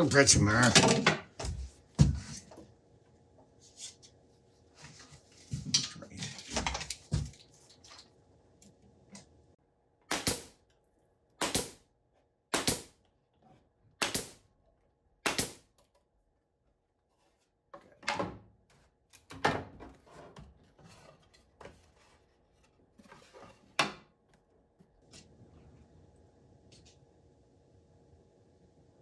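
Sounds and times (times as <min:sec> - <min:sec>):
pneumatic nailer shots: 0:10.1 - 0:10.6, 0:11.4 - 0:11.8, 0:12.5 - 0:13.0, 0:14.0 - 0:14.4, 0:15.2 - 0:15.7.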